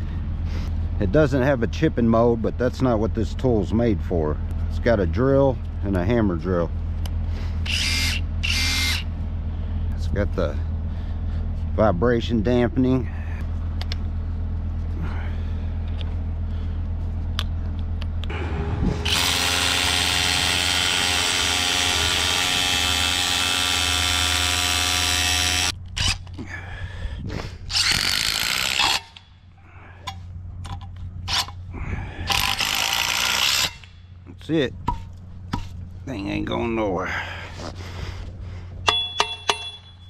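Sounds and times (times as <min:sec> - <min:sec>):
steady low hum: 0:00.0 - 0:40.0
rotary hammer drilling concrete: 0:07.6 - 0:09.0, 0:19.0 - 0:26.3, 0:27.7 - 0:29.2, 0:32.3 - 0:33.9.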